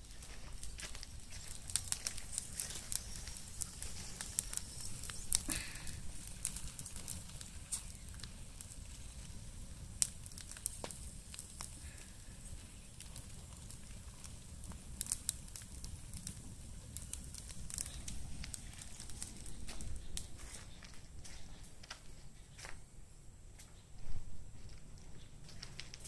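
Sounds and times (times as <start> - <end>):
sharp pops of fire: 0.0 - 22.0
brush fire crackling: 0.0 - 26.0.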